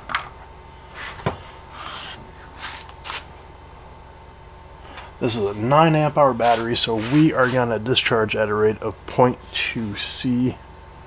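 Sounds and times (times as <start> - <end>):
faint hum: 0.0 - 11.0
test leads scraping: 6.3 - 7.8.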